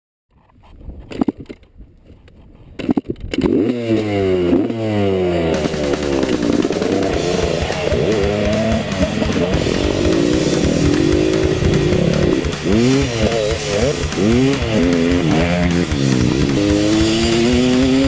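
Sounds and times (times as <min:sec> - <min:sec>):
dirt bike engine revving: 0:03.3 - 0:18.0
sharp knocks: 0:05.5 - 0:18.0.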